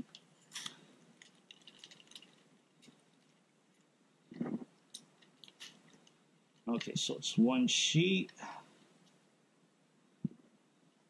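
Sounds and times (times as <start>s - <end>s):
plastic bag crinkling: 0.0s - 3.4s.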